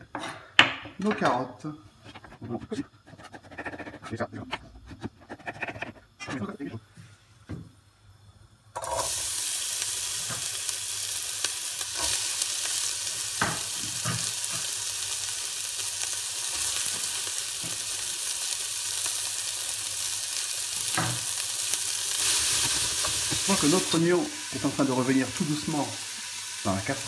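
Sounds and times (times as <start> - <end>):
vegetables sizzling in oil: 8.7 - 27.0.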